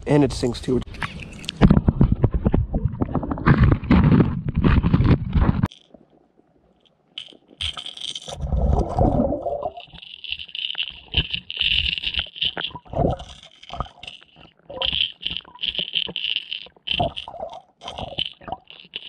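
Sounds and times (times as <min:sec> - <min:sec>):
pulsing high underwater rattle: 0:07.2 - 0:19.0.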